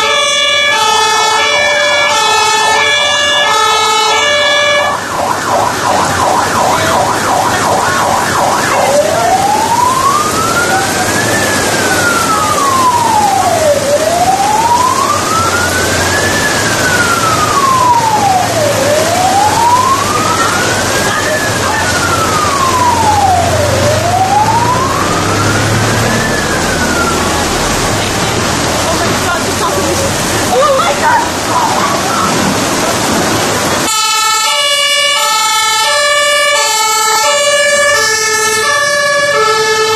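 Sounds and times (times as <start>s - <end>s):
electronic siren yelp and wail: 0.0s - 27.9s, 33.9s - 39.9s
heavy rain hissing: 5.7s - 34.0s.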